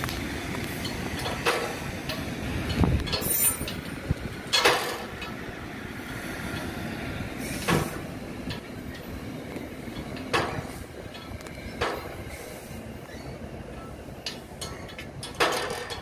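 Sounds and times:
train rumbling past: 0.0 - 16.0
train wheels clacking: 0.0 - 16.0.

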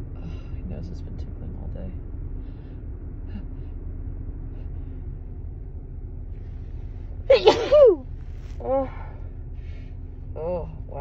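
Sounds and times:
low background rumble: 0.0 - 11.0
woman sneezing: 7.3 - 8.0.

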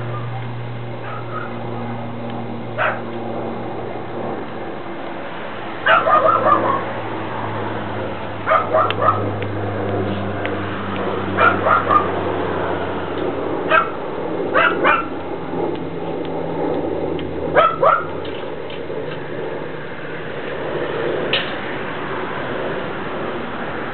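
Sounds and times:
dog barking and yipping: 0.0 - 0.4, 1.0 - 1.9, 2.8 - 3.1, 5.8 - 7.0, 8.4 - 9.3, 11.4 - 12.2, 13.7 - 15.2, 17.5 - 18.2
steady low hum: 0.0 - 23.9.

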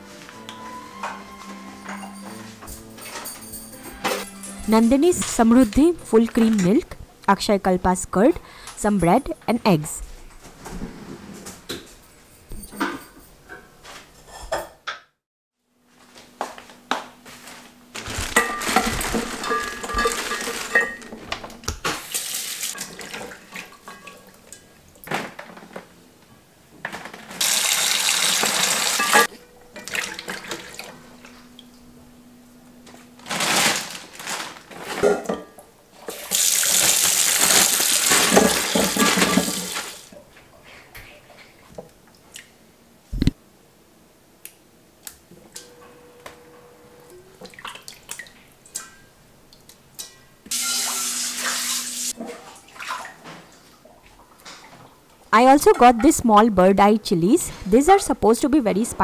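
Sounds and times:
small water splashes: 52.2 - 53.2.

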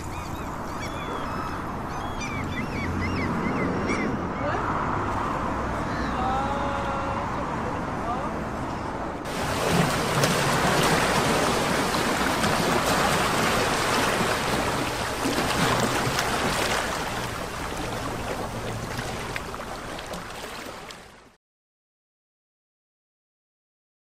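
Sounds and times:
small waves lapping on rocks: 9.3 - 21.3
choppy water rushing: 9.3 - 21.4.

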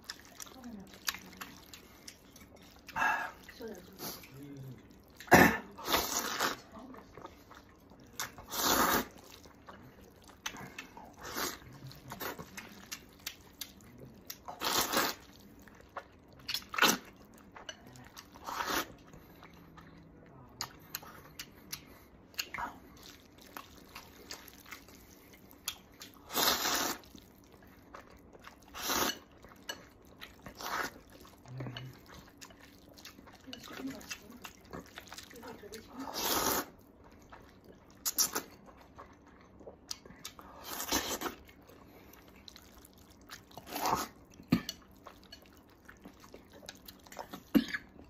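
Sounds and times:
wet chewing: 0.0 - 48.0
person slurping noodles: 5.8 - 6.6, 8.3 - 9.4, 11.0 - 12.4, 14.5 - 15.3, 18.4 - 19.0, 26.2 - 27.1, 28.7 - 29.2, 30.5 - 31.0, 36.0 - 36.7, 40.5 - 41.4, 43.6 - 44.2.

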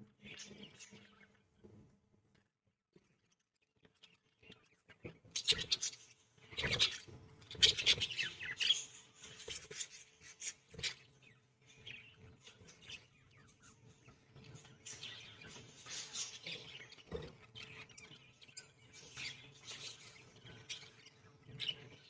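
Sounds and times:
budgerigars chattering and chirping: 5.3 - 22.0.

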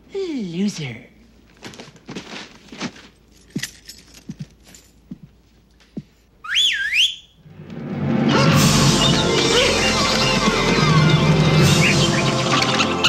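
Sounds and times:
soft rustling: 1.3 - 6.3
person whistling swooping: 6.5 - 7.3.

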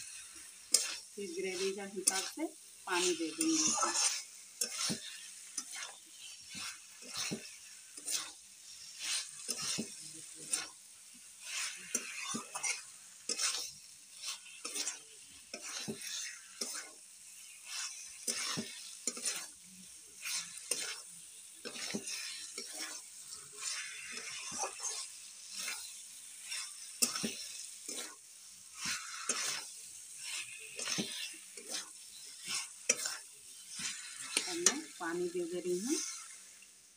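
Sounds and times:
spatula scraping metal pan: 0.0 - 36.6
light frying sizzle: 0.0 - 36.9.

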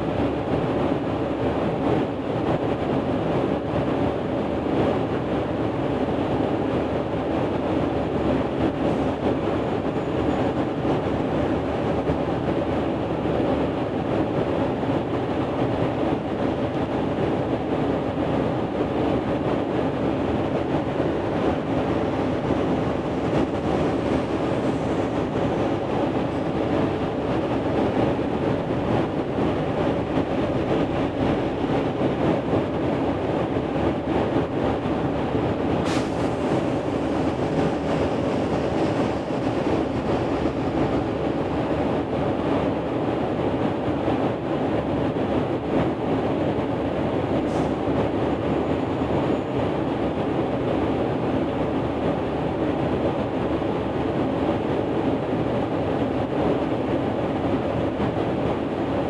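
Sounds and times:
ventilation air whoosh: 0.0 - 59.0.

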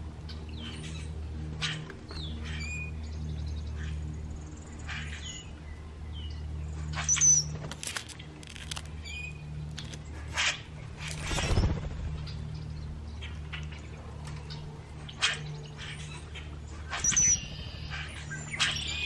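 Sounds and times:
steady low hum: 0.0 - 19.0
songbirds chirping and whistling: 0.1 - 19.0.

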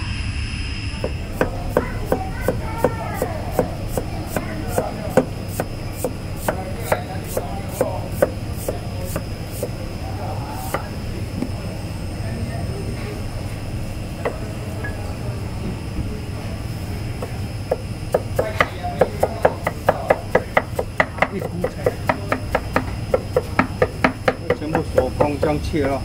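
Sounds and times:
cleaver knocking on wooden board: 17.2 - 26.0.

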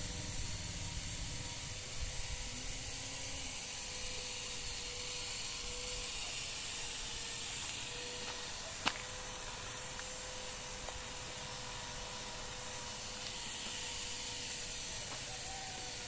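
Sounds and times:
faint hum: 0.0 - 16.0
outdoor hiss: 3.9 - 16.0.

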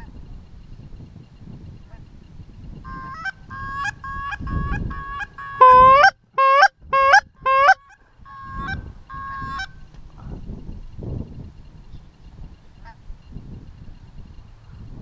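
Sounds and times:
wind rumble on microphone: 0.0 - 15.0
goose honking: 2.9 - 9.8.

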